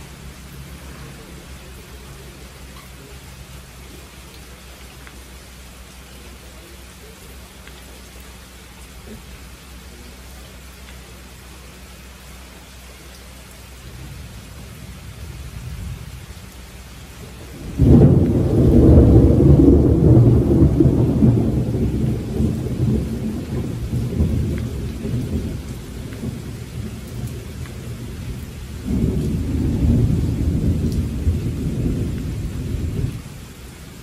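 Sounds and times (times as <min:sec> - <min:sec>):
steady rain: 0:00.0 - 0:34.0
thunder rolling: 0:17.3 - 0:33.6.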